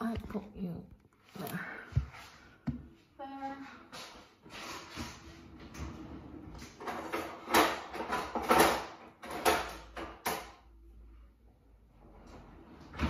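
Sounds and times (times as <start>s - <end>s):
drawer and utensils clattering: 4.7s - 10.6s.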